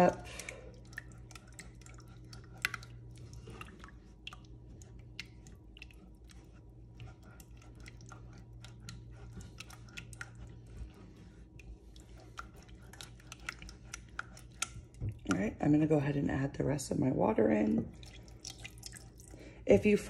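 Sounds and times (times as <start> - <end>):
spatula stirring paste in saucepan: 0.0 - 15.4
faint low hum: 0.0 - 20.0.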